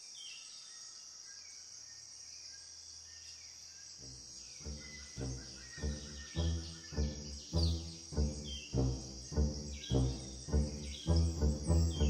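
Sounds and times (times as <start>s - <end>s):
faint bird chirps: 0.0s - 12.0s
high-pitched insect hiss: 1.2s - 12.0s
pulsing low-pitched soundtrack music: 4.0s - 12.0s.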